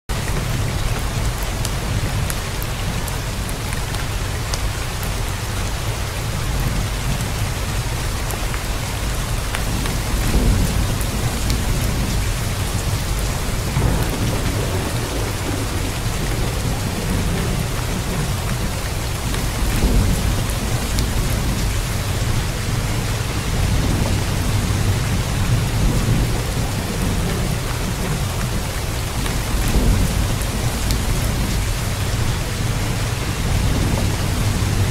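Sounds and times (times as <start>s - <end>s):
heavy rain hissing: 0.1s - 34.9s
distant thunder rumbling: 9.3s - 34.9s.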